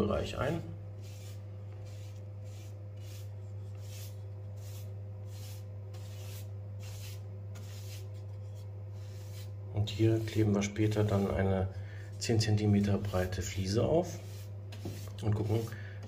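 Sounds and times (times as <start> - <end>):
paintbrush swishing on board: 1.0 - 11.4, 12.1 - 15.7.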